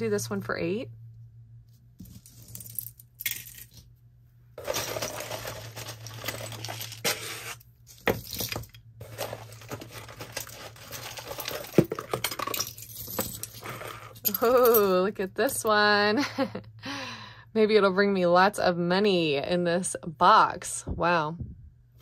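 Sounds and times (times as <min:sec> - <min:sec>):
metal jewelry clinking: 0:02.0 - 0:03.8, 0:04.6 - 0:07.2, 0:07.9 - 0:15.6.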